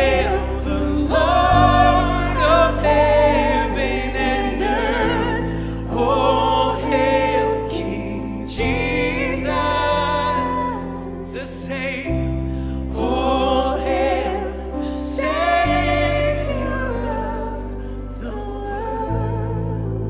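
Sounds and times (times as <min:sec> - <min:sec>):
women singing with vibrato: 0:00.0 - 0:12.0
deep bass: 0:00.0 - 0:20.0
keyboard chords: 0:00.0 - 0:20.0.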